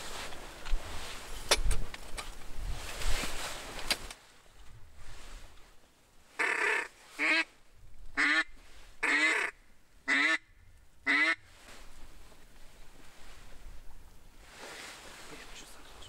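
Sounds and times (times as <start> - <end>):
duck quacks: 6.4 - 7.5, 8.2 - 10.4, 11.1 - 11.4.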